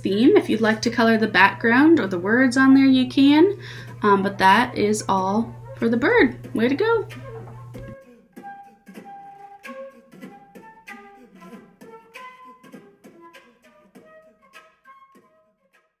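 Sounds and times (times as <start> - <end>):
flute melody: 5.5 - 6.0, 6.8 - 16.0.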